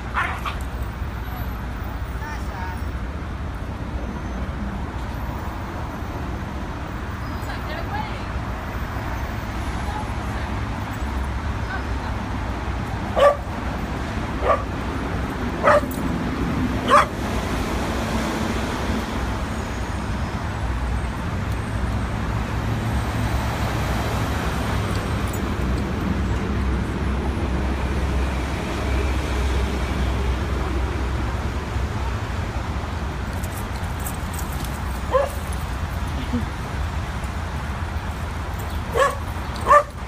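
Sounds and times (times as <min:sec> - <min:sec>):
city traffic rumble: 0:00.0 - 0:40.0
dogs barking: 0:13.1 - 0:13.6, 0:14.4 - 0:14.8, 0:15.6 - 0:16.0, 0:16.8 - 0:17.2, 0:35.1 - 0:35.5, 0:38.9 - 0:40.0.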